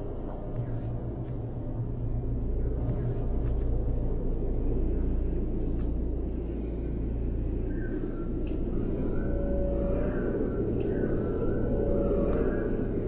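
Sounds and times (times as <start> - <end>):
low background rumble: 0.0 - 13.0.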